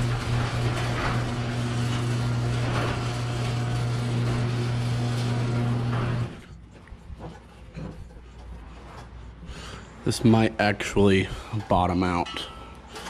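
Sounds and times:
garage door opener motor hum: 0:00.0 - 0:06.6
garage door rolling on tracks: 0:00.0 - 0:06.6.

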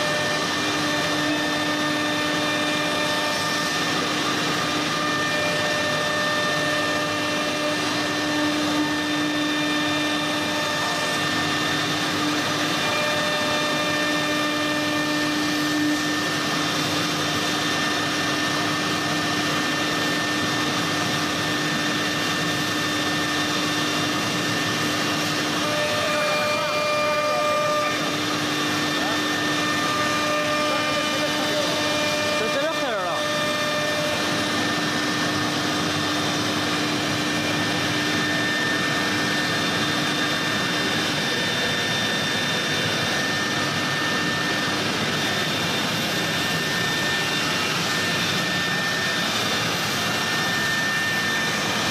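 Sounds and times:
drill bit cutting wood: 0:00.0 - 0:51.9
router spindle whining: 0:00.0 - 0:51.9.

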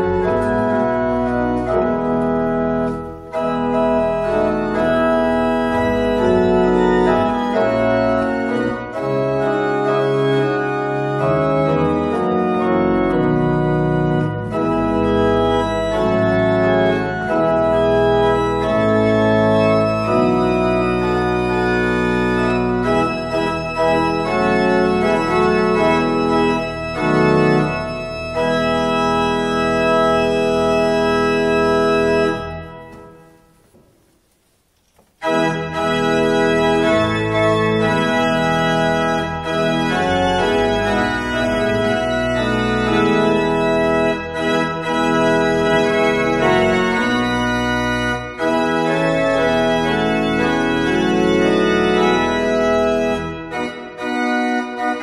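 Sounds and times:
pipe organ sustained chords: 0:00.0 - 0:33.6, 0:35.2 - 0:55.0.

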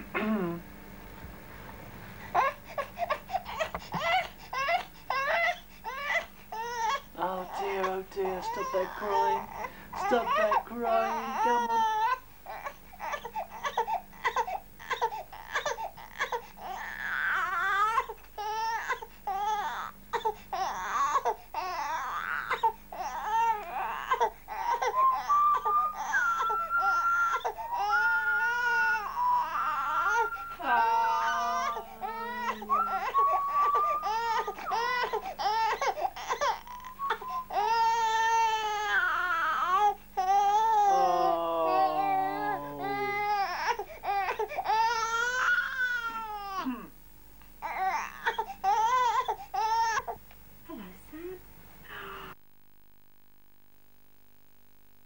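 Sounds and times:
infant crying: 0:02.4 - 0:46.9, 0:47.6 - 0:50.2.

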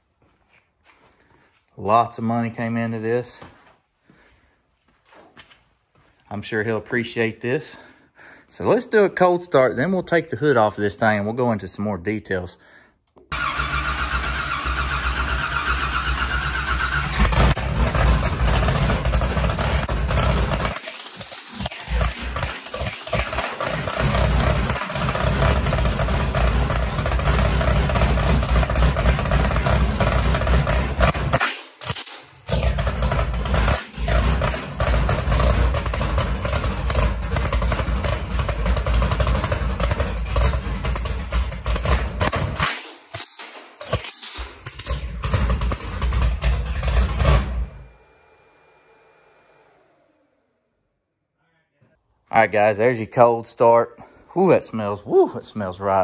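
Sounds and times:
engine starter turning over: 0:13.3 - 0:50.6
loud engine running: 0:13.3 - 0:50.6.

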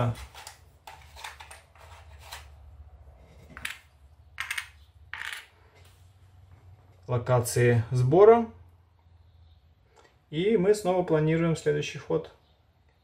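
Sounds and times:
game pieces tapping on table: 0:03.6 - 0:05.5.

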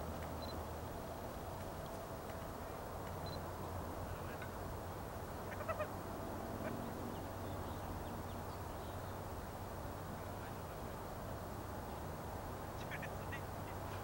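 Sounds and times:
bird calling: 0:05.5 - 0:05.9, 0:12.8 - 0:14.0.

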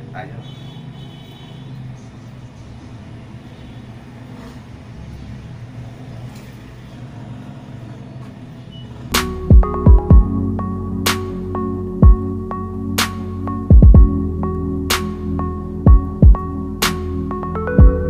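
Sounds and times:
electronic music with deep bass: 0:09.1 - 0:18.0.

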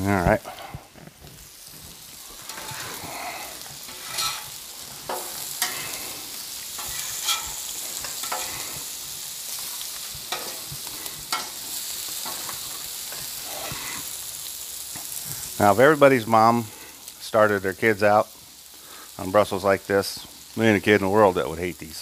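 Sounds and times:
food sizzling on griddle: 0:00.0 - 0:22.0
metal spatula scraping griddle: 0:01.9 - 0:14.2.

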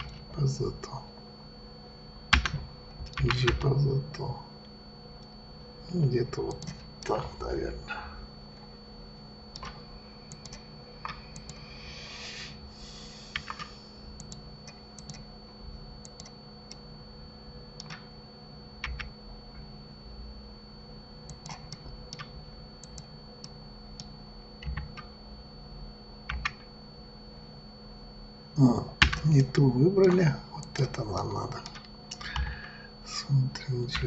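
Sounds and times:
faint electrical hum: 0:00.0 - 0:34.0
keyboard and mouse clicks: 0:02.4 - 0:03.7, 0:09.5 - 0:11.6, 0:13.3 - 0:15.2, 0:16.0 - 0:16.8, 0:17.8 - 0:18.0, 0:18.8 - 0:19.1, 0:21.3 - 0:25.1, 0:26.3 - 0:26.6, 0:30.0 - 0:30.8, 0:31.6 - 0:32.5.

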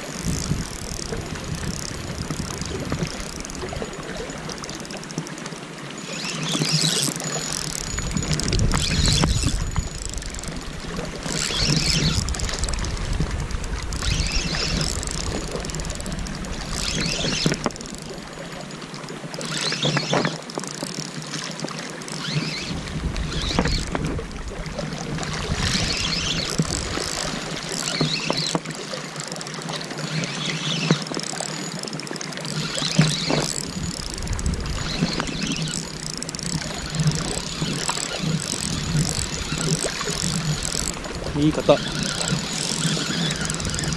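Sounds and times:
wind buffeting microphone: 0:00.0 - 0:04.1, 0:08.0 - 0:16.9, 0:33.5 - 0:43.9
sharp clicks: 0:00.0 - 0:18.5, 0:19.4 - 0:24.1, 0:25.6 - 0:43.9
water washing along rocky shore: 0:00.0 - 0:43.9.

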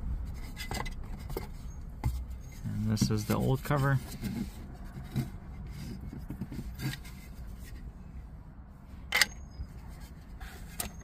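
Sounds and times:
low steady hum: 0:00.0 - 0:11.0
soft plastic rubs: 0:00.2 - 0:08.3, 0:09.7 - 0:11.0.

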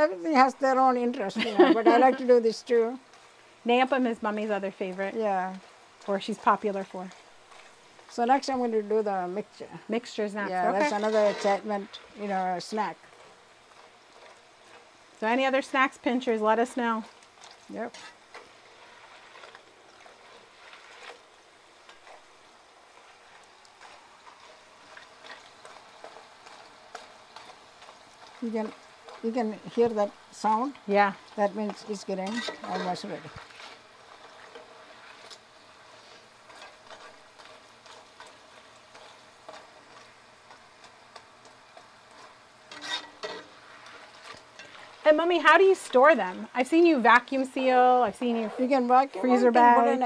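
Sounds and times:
oil sizzling: 0:00.0 - 0:50.0
metal spatula scraping pot: 0:03.8 - 0:08.5, 0:10.0 - 0:21.3, 0:31.6 - 0:40.9, 0:42.1 - 0:46.3, 0:48.2 - 0:49.0.

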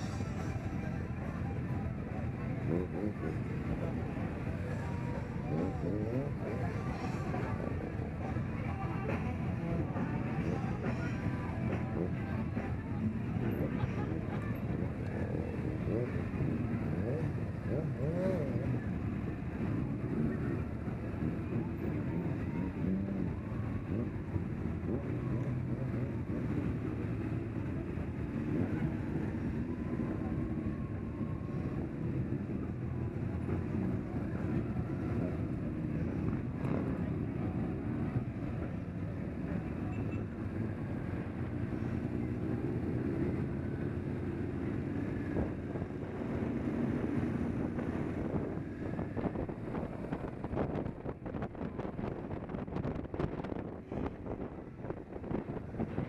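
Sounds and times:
motorcycle engines running: 0:00.0 - 0:56.0
wind buffeting microphone: 0:44.9 - 0:56.0.

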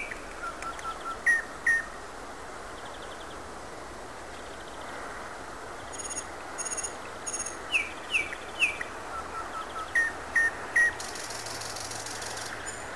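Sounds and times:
nightingale singing: 0:00.0 - 0:02.0, 0:05.8 - 0:12.9.

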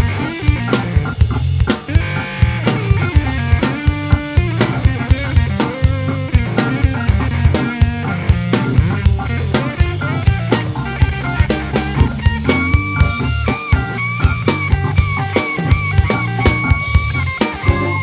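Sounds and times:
backing band with bass and guitar: 0:00.0 - 0:18.0
funk drum kit groove: 0:00.0 - 0:18.0
held high notes: 0:10.1 - 0:18.0.

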